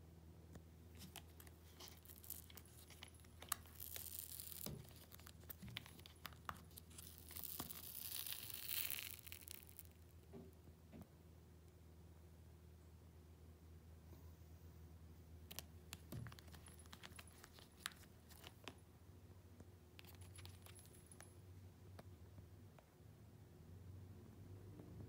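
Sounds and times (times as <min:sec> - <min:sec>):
gel pad peeling off: 0:01.0 - 0:10.0.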